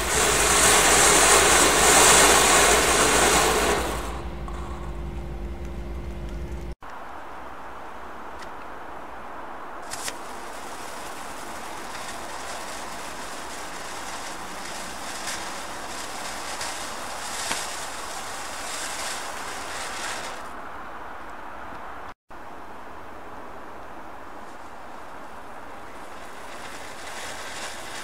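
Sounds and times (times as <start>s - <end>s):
firework fountain spray hiss: 0.0s - 5.1s, 9.8s - 20.6s, 24.2s - 28.0s
firework pops: 9.8s - 20.5s.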